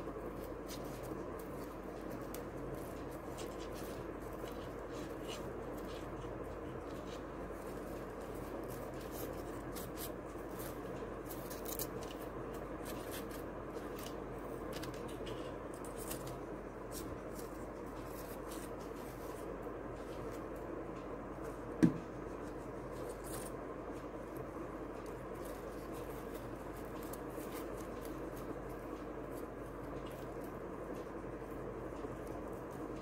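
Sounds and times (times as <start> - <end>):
crepe paper rustling and tearing: 0.1 - 20.4.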